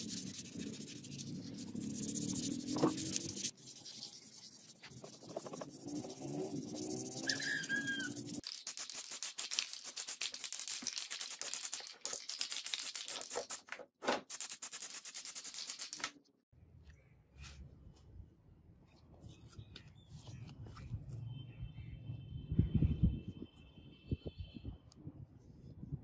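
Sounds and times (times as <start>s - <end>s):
aerosol can mixing ball rattling: 0.0s - 13.7s.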